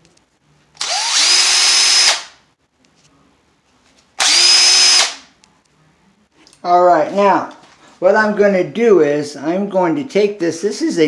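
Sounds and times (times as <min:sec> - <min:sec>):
power drill whining: 0:00.8 - 0:02.3, 0:04.2 - 0:05.2.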